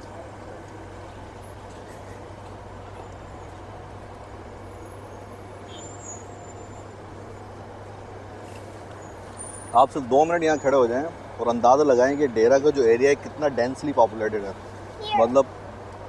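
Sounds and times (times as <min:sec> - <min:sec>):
heavy city traffic hum: 0:00.0 - 0:16.0.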